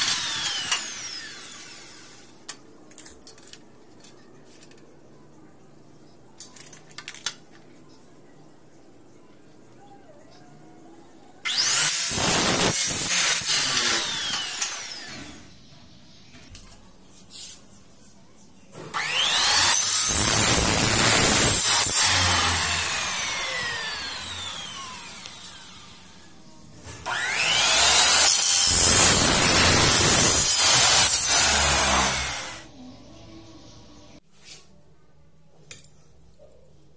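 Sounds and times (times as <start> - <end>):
miter saw motor whine: 19.0 - 26.2.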